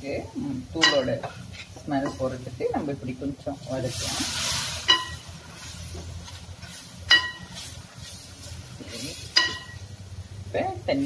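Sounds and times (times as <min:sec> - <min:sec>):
frying hiss: 0:00.0 - 0:11.0
ladle clinking against pot: 0:00.8 - 0:01.2, 0:04.9 - 0:05.2, 0:07.1 - 0:07.5, 0:09.3 - 0:09.8
ladle stirring in a pot: 0:03.5 - 0:09.8.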